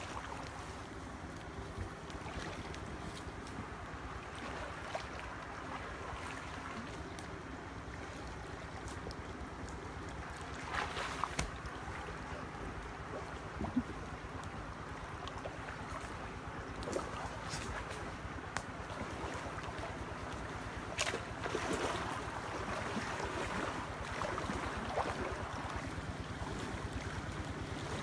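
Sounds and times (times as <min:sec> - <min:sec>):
wading through water sloshing: 0:00.0 - 0:28.0.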